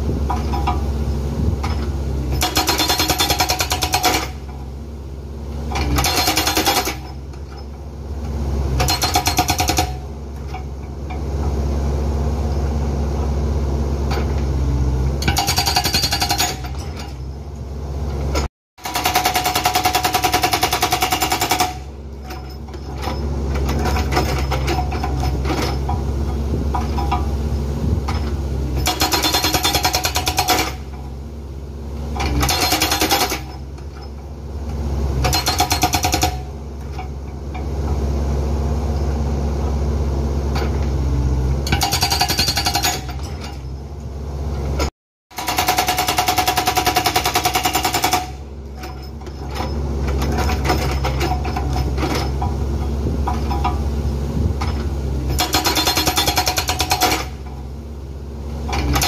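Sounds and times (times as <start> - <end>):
diesel engine running: 0.0 - 59.0
hydraulic breaker hammering rocks: 0.1 - 4.6, 5.7 - 7.7, 8.7 - 11.2, 15.2 - 17.2, 18.3 - 31.1, 32.1 - 34.2, 35.2 - 37.6, 41.6 - 43.7, 44.8 - 57.7, 58.6 - 59.0.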